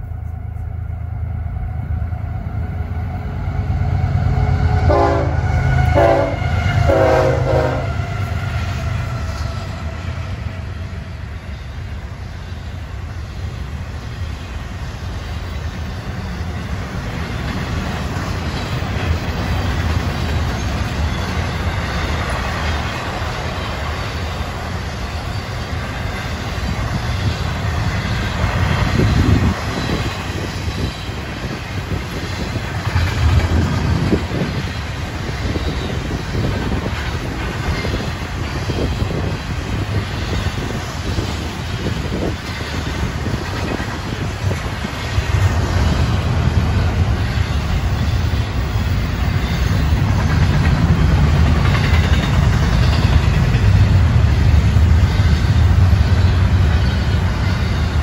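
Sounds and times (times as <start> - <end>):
train horn blasts: 0.0 - 8.7
diesel locomotives rumbling: 0.0 - 58.0
freight cars rolling wheel noise: 6.9 - 58.0.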